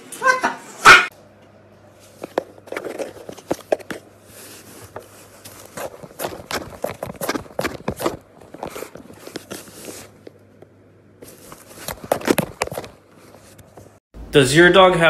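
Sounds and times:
cat scratching inside cardboard box: 2.4s - 10.2s.

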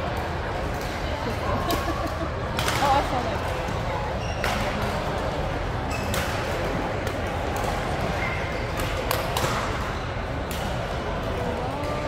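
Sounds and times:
people's voices in a hall: 0.0s - 12.0s
shoe squeaks on court floor: 8.2s - 8.8s.

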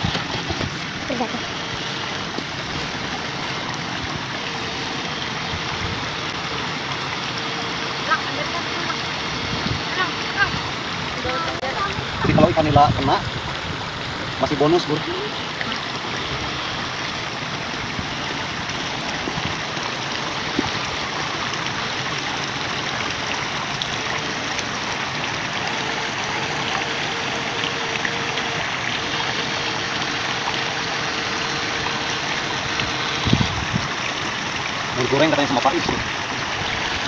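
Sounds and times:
water sloshing around wading legs: 0.0s - 37.0s.

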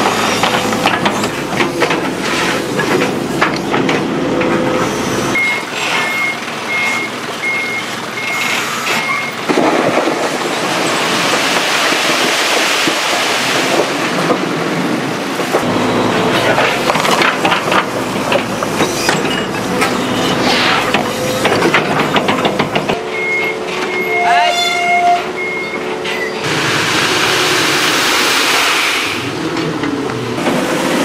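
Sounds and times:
construction machinery engine running: 0.0s - 9.5s, 15.3s - 24.1s, 25.3s - 31.0s
warning alarm beeping: 23.0s - 26.4s.

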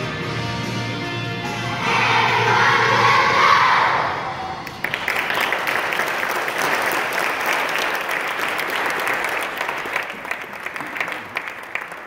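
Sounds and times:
audience applauding: 4.6s - 12.0s.

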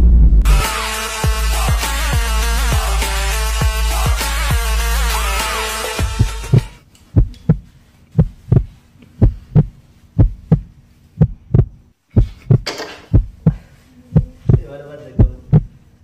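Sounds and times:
heartbeat thumps: 6.0s - 15.8s.

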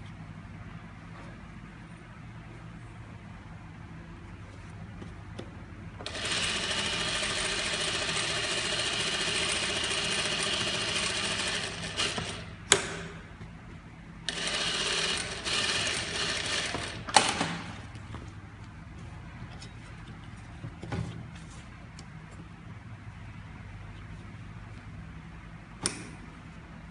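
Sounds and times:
industrial sewing machine stitching: 6.0s - 12.6s, 14.3s - 17.8s.

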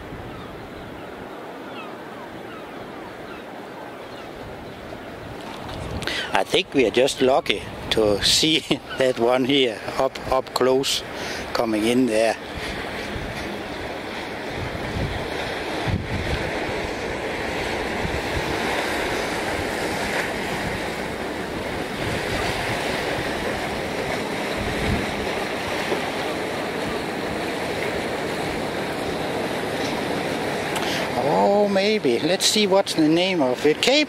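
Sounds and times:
harbour water sloshing: 0.0s - 34.0s
wind buffeting microphone: 2.5s - 31.5s.

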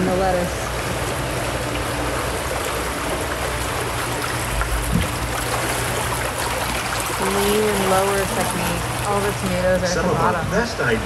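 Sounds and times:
water rushing: 0.0s - 11.0s
low thud: 4.6s - 5.3s.

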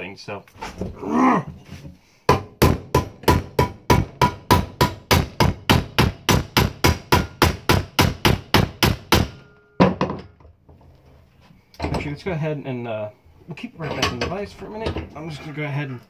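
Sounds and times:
hammer striking metal: 2.3s - 10.2s.

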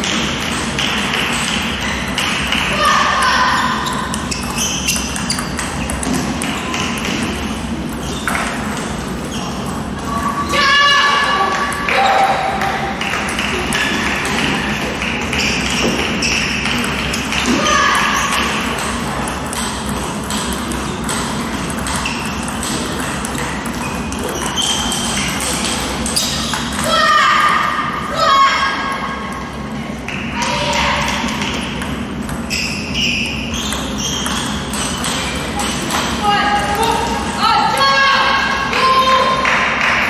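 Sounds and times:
table tennis balls clicking: 0.0s - 10.4s, 11.5s - 26.9s, 28.9s - 37.3s
sports hall hum: 0.0s - 40.0s
short high squeaks: 3.4s - 6.0s, 26.0s - 26.8s, 32.4s - 35.2s
table tennis ball clicking: 18.3s - 26.9s.

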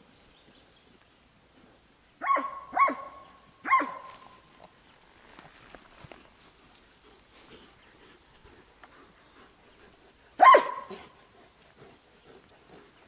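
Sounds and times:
dog barking: 2.2s - 4.1s, 10.4s - 11.1s.

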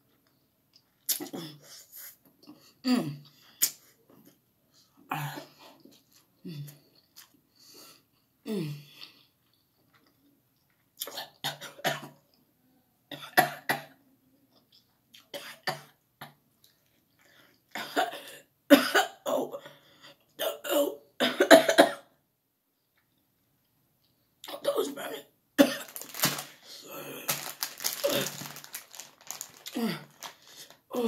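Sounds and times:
woman coughing: 17.8s - 19.5s, 20.5s - 22.1s, 25.6s - 26.5s
woman clearing her throat: 29.7s - 30.2s.

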